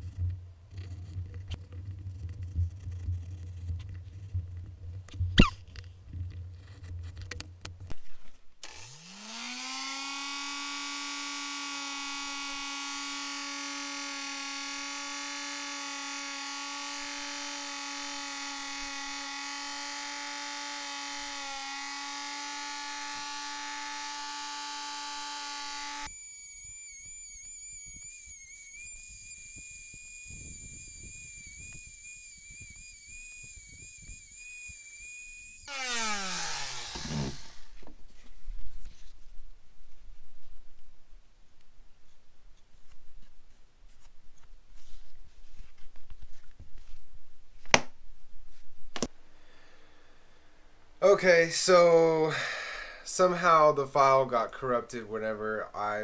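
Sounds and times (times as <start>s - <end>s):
rotary tool sanding: 0.0s - 4.4s, 8.6s - 37.8s.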